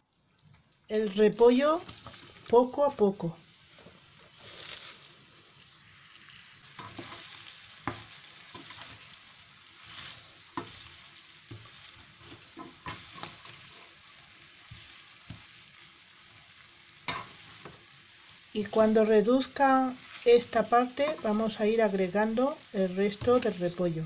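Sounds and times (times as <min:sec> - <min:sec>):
cabbage sizzling in oil: 0:00.0 - 0:24.0
spoon knocking and scraping pan: 0:06.7 - 0:09.2, 0:09.8 - 0:14.0, 0:17.0 - 0:17.9, 0:20.9 - 0:21.6, 0:23.0 - 0:23.6.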